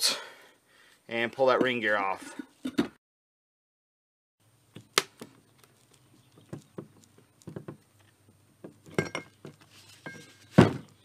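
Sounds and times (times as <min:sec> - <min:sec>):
metal clinks and knocks: 0:08.7 - 0:10.9.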